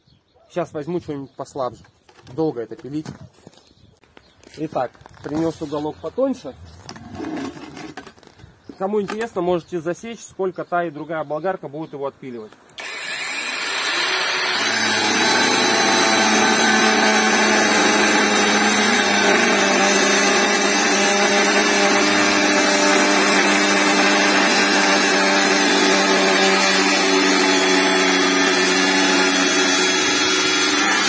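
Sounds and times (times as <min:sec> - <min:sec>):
angle grinder cutting steel: 0:12.8 - 0:31.0.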